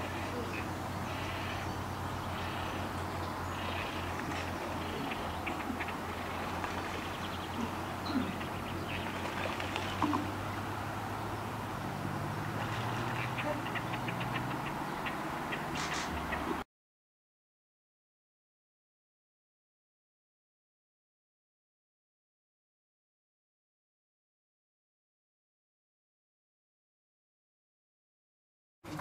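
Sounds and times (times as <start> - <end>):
faint bird chirps: 0.0 - 10.4
higher drone: 0.0 - 16.2
low hum: 0.0 - 16.6.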